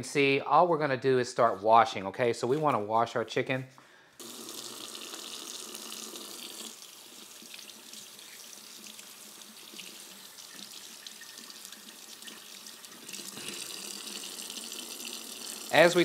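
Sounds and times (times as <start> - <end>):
faucet running into sink: 4.2 - 16.0.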